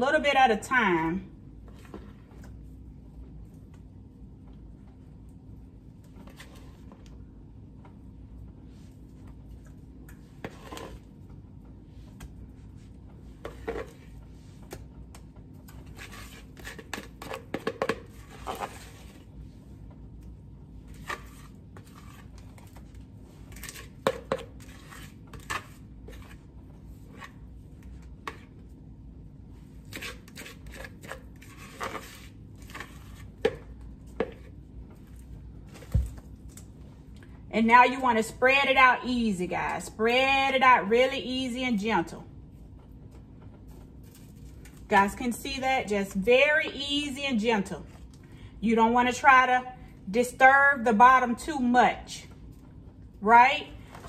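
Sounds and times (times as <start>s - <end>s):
faint steady hum: 0.0s - 54.0s
spatula scraping batter from bowl: 10.3s - 11.1s, 13.4s - 14.9s, 15.6s - 19.3s, 20.8s - 28.6s, 29.8s - 34.6s.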